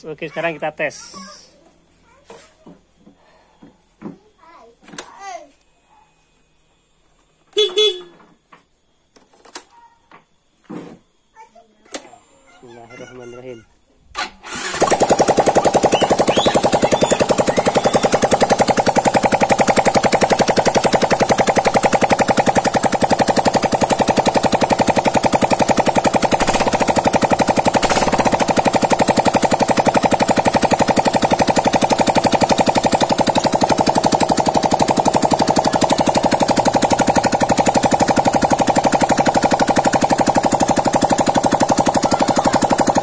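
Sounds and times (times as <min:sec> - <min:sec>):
scooter engine popping without exhaust: 0:14.4 - 0:43.0.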